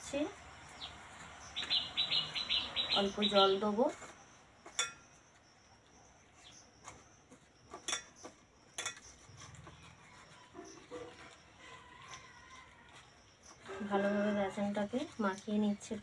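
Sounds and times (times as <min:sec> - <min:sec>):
hand mixing batter in steel bowl: 0:06.4 - 0:16.0.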